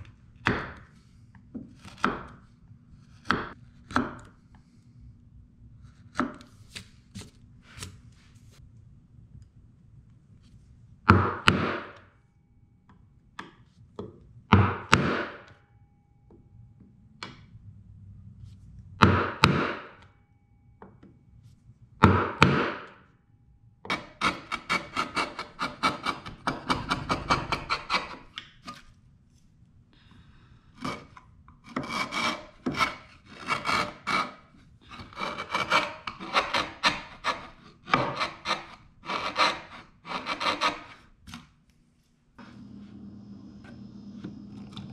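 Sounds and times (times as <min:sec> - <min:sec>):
chisel scraping wood: 0:01.7 - 0:02.2, 0:02.9 - 0:04.2, 0:23.9 - 0:28.9, 0:30.7 - 0:41.5
mallet striking chisel: 0:14.5 - 0:15.6.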